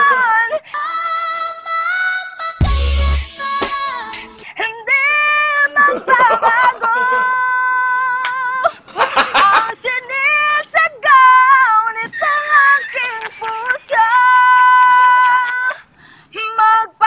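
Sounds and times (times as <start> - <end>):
person singing a slow ballad: 0.0 - 4.5
bursts of laughter: 12.0 - 14.4.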